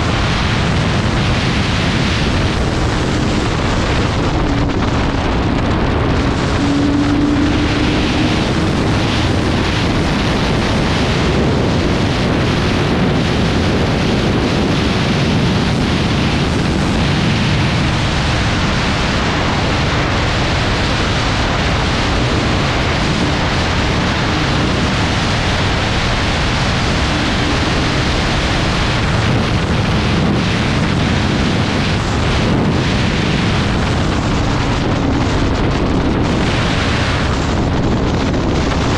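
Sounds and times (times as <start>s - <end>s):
wind rush on microphone: 0.0s - 38.9s
motorcycle engine cruising: 0.8s - 13.1s, 21.8s - 38.9s.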